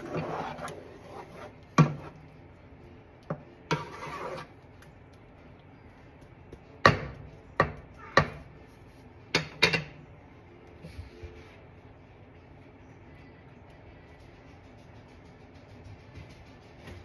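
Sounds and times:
spatula scraping while stirring: 0:00.0 - 0:02.6, 0:03.2 - 0:05.1
wooden spatula knocking on pot: 0:06.8 - 0:08.4.

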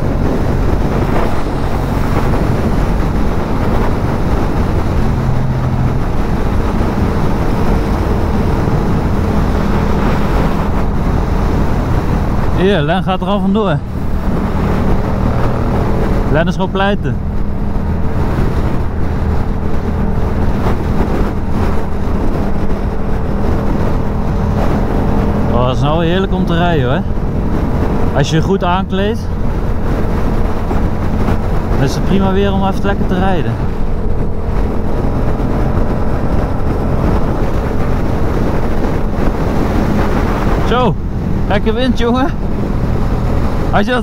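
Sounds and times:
motorcycle engine cruising: 0:00.0 - 0:44.0
wind and road noise: 0:00.0 - 0:44.0.

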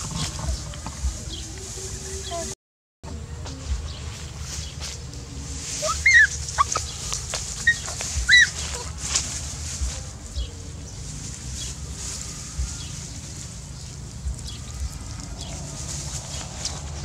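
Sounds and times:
rustling in dry straw: 0:00.0 - 0:02.5, 0:03.1 - 0:17.0
high-pitched animal calls: 0:05.8 - 0:08.9.

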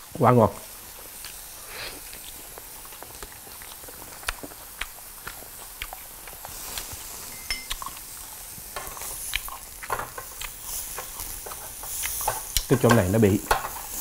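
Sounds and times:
meat sizzling on grill plate: 0:00.0 - 0:14.0
dishes tapping: 0:07.3 - 0:07.8.

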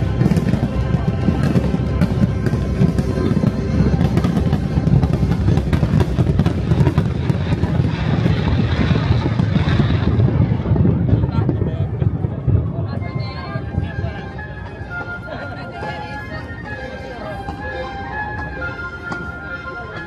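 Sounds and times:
music playing: 0:00.0 - 0:08.9, 0:13.5 - 0:20.0
fireworks bangs and crackling: 0:00.0 - 0:16.8.

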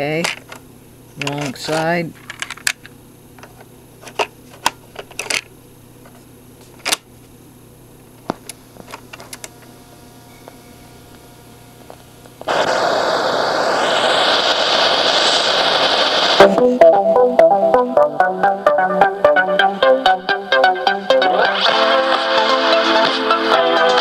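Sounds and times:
music from cassette speaker: 0:16.1 - 0:24.0.

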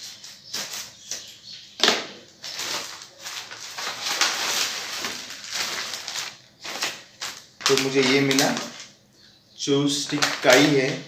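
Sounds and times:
plastic packet crinkling: 0:02.4 - 0:09.0, 0:10.0 - 0:11.0.

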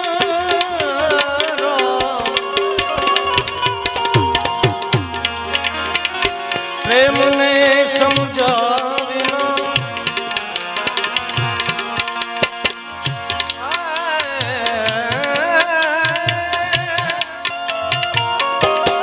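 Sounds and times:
man singing long notes: 0:00.0 - 0:03.6, 0:06.8 - 0:10.2, 0:13.6 - 0:17.7
harmonium drone: 0:00.0 - 0:19.0
tabla strokes: 0:00.0 - 0:19.0.

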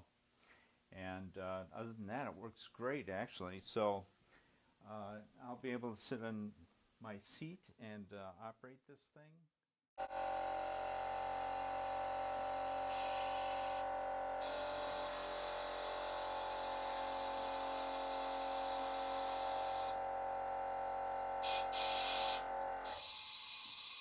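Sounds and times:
air compressor running: 0:10.0 - 0:24.0.

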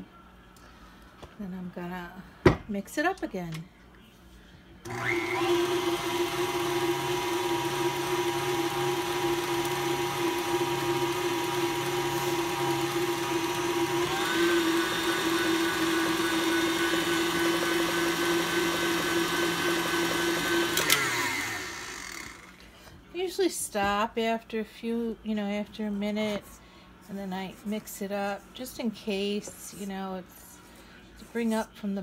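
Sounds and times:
stand mixer running: 0:04.8 - 0:22.6.

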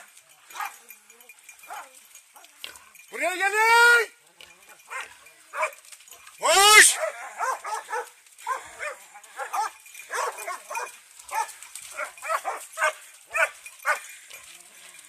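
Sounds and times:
dogs barking in high yelps: 0:00.0 - 0:03.1, 0:04.6 - 0:15.0.

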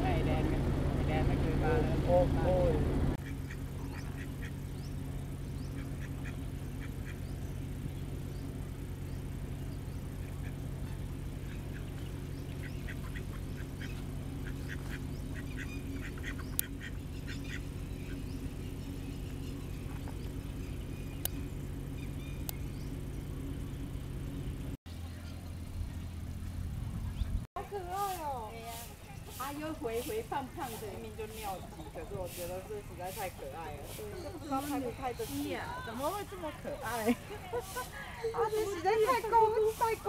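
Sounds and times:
steady low hum: 0:00.0 - 0:40.0
ducks quacking softly: 0:03.2 - 0:04.6, 0:05.6 - 0:07.3, 0:10.2 - 0:18.2.

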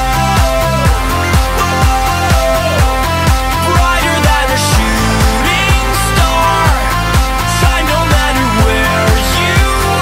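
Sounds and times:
steady kick drum: 0:00.9 - 0:09.3
synth chords: 0:03.6 - 0:09.3.

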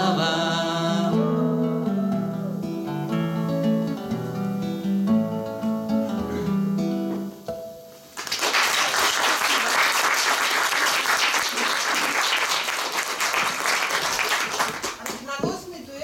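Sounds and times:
acoustic guitar playing: 0:00.0 - 0:08.2
audience applause: 0:08.2 - 0:15.2.

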